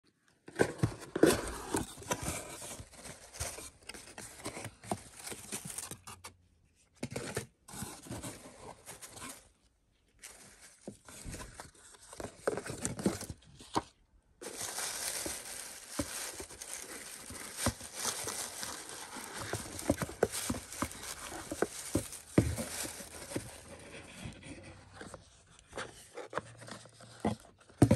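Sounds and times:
paper rustling and crinkling: 0:00.6 - 0:06.3, 0:10.2 - 0:27.9
shredded paper filler rustling: 0:14.4 - 0:24.2.

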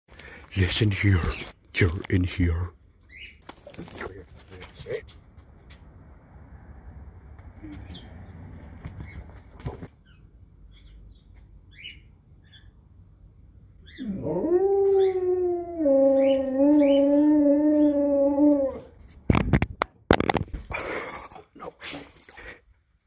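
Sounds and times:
dog howling: 0:14.0 - 0:18.9.

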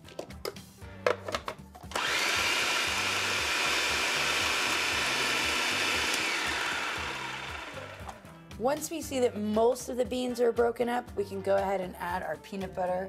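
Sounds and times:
food processor running: 0:01.9 - 0:08.2.

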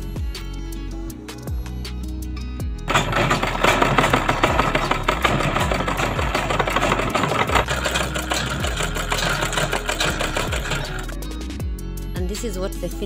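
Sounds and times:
sewing machine clattering: 0:02.9 - 0:11.3.

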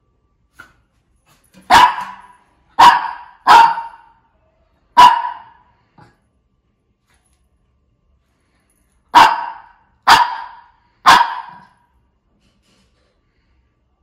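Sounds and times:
dog barking: 0:01.7 - 0:04.2, 0:04.9 - 0:06.1, 0:09.1 - 0:11.8.

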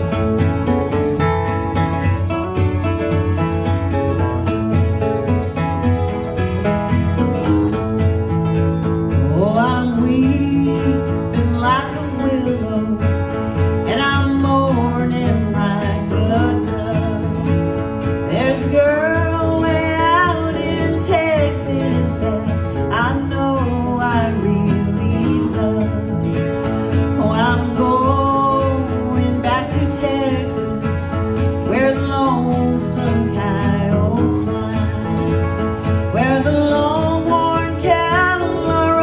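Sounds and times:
acoustic guitars strumming: 0:00.0 - 0:39.0
women singing country song: 0:09.1 - 0:39.0.

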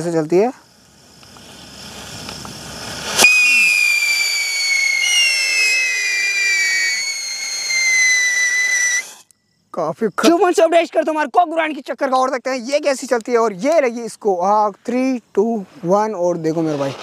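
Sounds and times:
fuse fizzing hiss: 0:00.0 - 0:09.3, 0:12.6 - 0:17.0
firework high whistle: 0:01.0 - 0:09.3.

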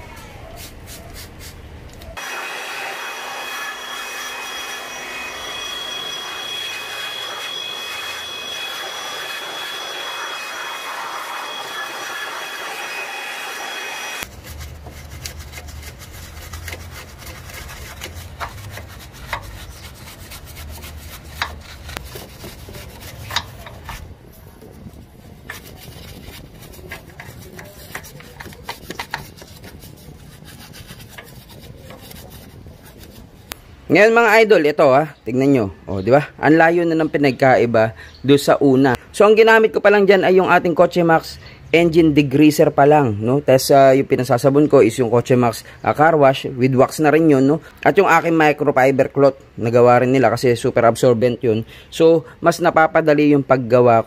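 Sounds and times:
brush scrubbing metal: 0:00.5 - 0:33.6
steady hiss with faint whistling: 0:03.1 - 0:14.6.

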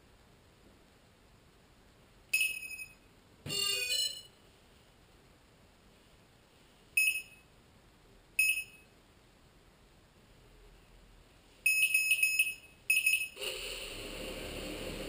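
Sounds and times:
jumble of mixed tones: 0:13.4 - 0:15.0.

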